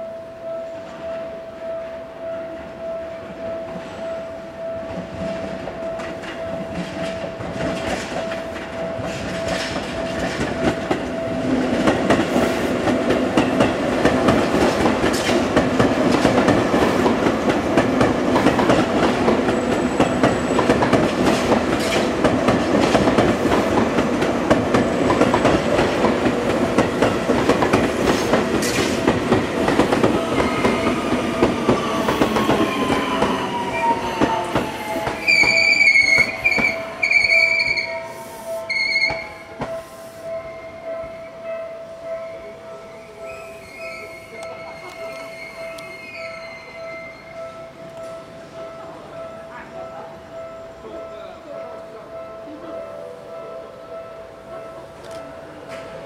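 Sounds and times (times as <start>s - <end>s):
electric train passing: 0.0s - 56.0s
wheels clacking over rail joints: 6.0s - 37.1s.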